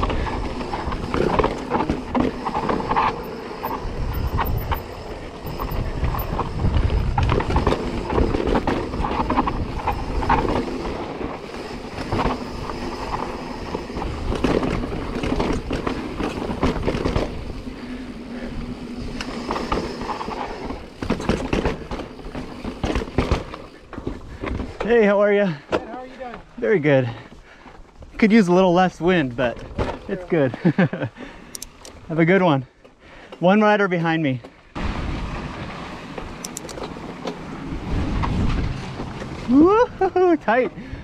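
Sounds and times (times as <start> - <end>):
wind rumble on microphone: 0.0 - 17.8, 37.5 - 40.1
bike knocks and rattles: 0.0 - 18.5, 19.1 - 24.9, 29.5 - 30.8
bike tyres grinding over rock: 0.0 - 31.1.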